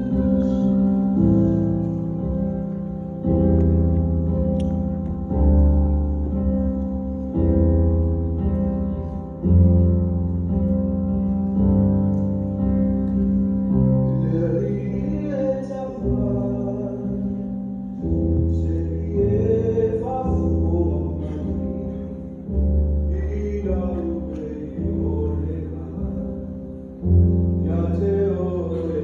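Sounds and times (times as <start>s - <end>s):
keyboard chords with deep bass: 0.0s - 29.0s
person singing: 14.0s - 17.6s.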